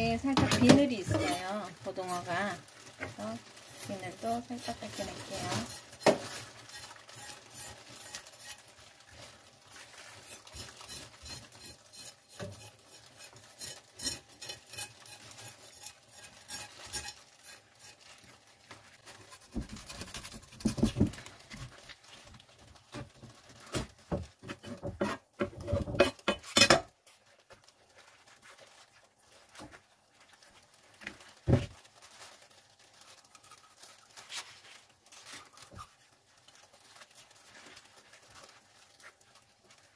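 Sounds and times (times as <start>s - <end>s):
knife scraping fish scales: 3.7s - 8.7s, 10.0s - 18.2s.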